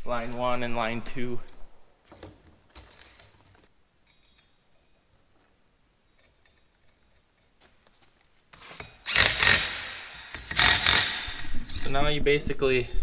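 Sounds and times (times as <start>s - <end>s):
cordless drill whirring: 9.0s - 11.4s.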